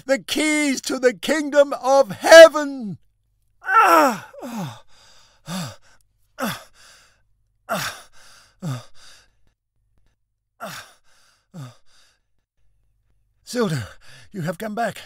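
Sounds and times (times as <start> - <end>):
man groaning sighs: 3.8 - 4.8.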